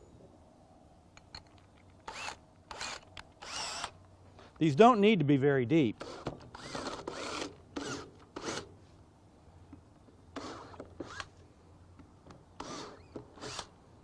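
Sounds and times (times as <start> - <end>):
cordless drill boring into wood: 2.1 - 4.0, 6.0 - 8.7, 10.4 - 11.3, 12.6 - 13.7.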